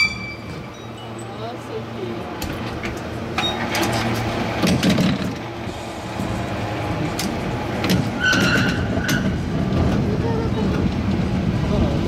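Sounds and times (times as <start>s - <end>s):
short ringing tone: 0.0s - 1.2s
cable car rumbling: 0.0s - 12.0s
clanks and rattles: 2.4s - 5.6s, 7.0s - 11.2s.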